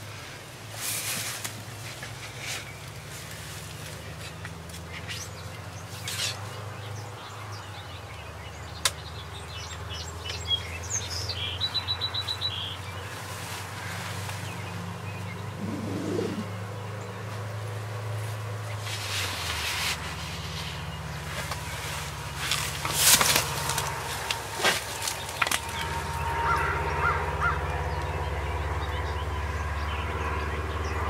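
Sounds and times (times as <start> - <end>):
small birds chirping: 3.9 - 19.7
steady low hum: 15.4 - 17.0
bird trill: 15.5 - 16.5.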